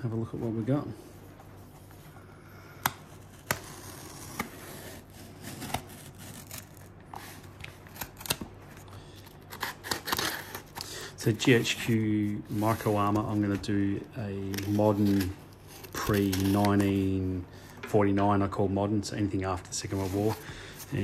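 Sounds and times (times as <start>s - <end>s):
knife cutting tape and cardboard: 9.5s - 10.6s.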